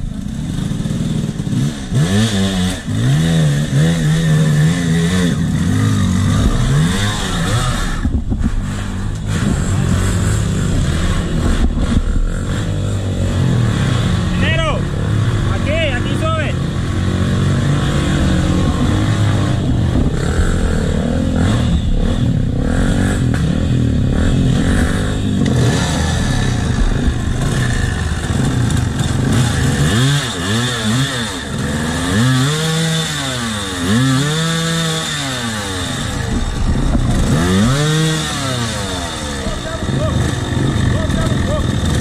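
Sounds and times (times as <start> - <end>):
dirt bike engines revving: 0.0 - 42.0.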